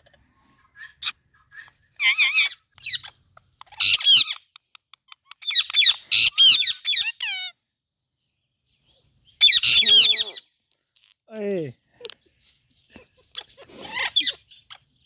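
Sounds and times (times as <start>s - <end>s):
parakeet squawking and chattering: 0.6s - 7.7s, 9.3s - 11.1s, 13.2s - 15.0s.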